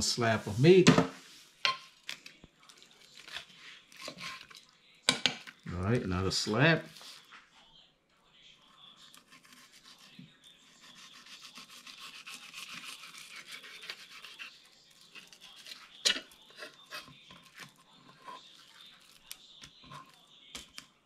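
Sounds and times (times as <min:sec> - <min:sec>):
knife rasping on cutting board: 0:10.8 - 0:14.5.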